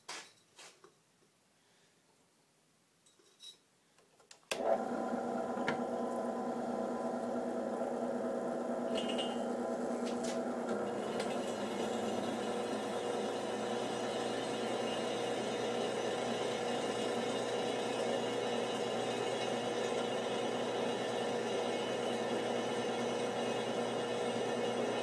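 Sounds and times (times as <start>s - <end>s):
drill press motor humming: 4.5s - 25.0s
drill bit on steel: 8.9s - 25.0s.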